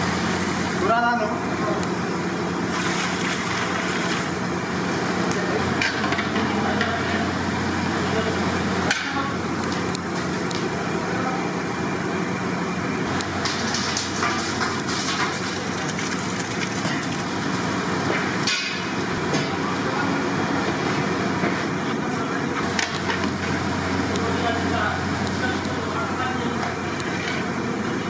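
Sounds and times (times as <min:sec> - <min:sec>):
gas burner hiss and hum: 0:00.0 - 0:28.0
water boiling: 0:00.0 - 0:28.0
rice pouring into water: 0:02.7 - 0:04.4, 0:15.4 - 0:18.0.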